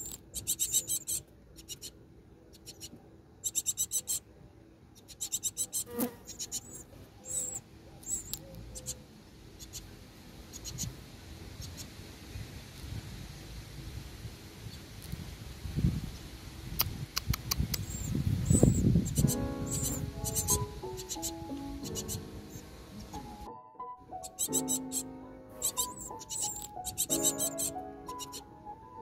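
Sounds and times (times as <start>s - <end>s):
nestlings begging calls: 0.0s - 4.2s, 5.0s - 9.0s, 9.6s - 9.9s, 10.5s - 11.0s, 17.8s - 23.3s, 24.2s - 28.5s.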